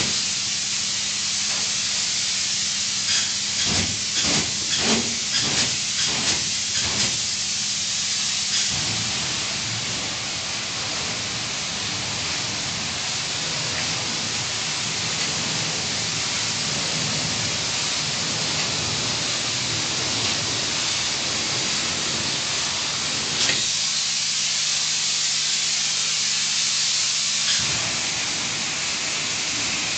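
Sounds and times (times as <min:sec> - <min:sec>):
spray foam gun hissing: 0:00.0 - 0:29.9.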